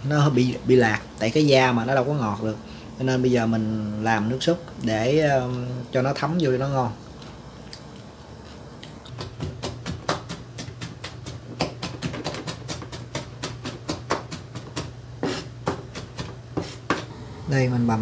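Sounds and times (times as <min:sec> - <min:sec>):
low steady hum: 0:00.0 - 0:18.0
knife chopping on plastic board: 0:09.1 - 0:17.1.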